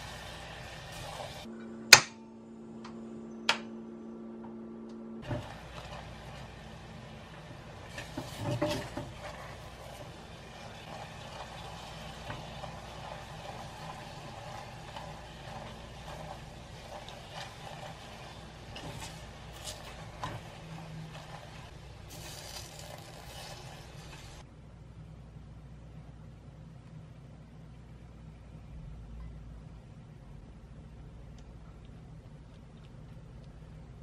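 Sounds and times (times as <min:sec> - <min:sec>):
caramel sizzling: 0:00.0 - 0:01.5, 0:05.2 - 0:24.5
spatula scraping saucepan: 0:07.7 - 0:24.4.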